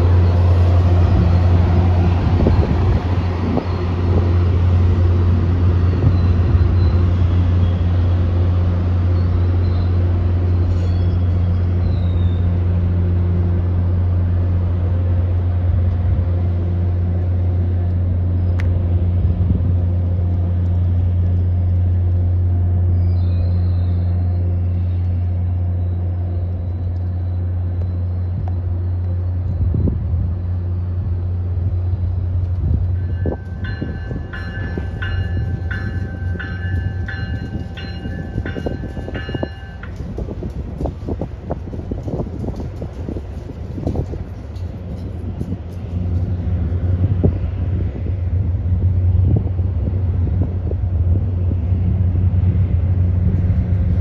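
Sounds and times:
diesel locomotive drone: 0.0 - 54.0.

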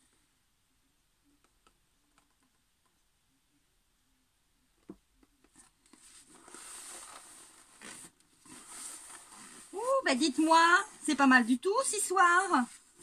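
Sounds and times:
paper towel rustling: 5.9 - 13.0.

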